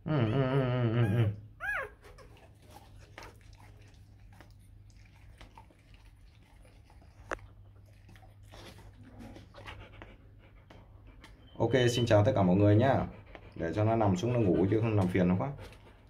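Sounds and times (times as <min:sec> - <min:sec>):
dog licking puppy: 0:02.0 - 0:16.0.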